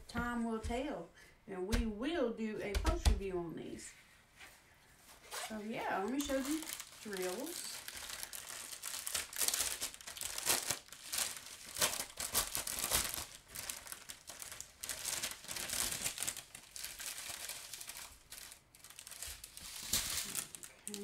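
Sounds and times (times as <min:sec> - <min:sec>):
plastic bags crinkling: 0:05.2 - 0:21.0.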